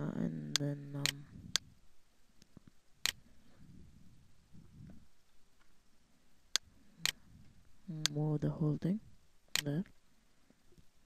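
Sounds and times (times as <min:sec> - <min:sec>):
computer mouse clicks: 0:09.5 - 0:09.8.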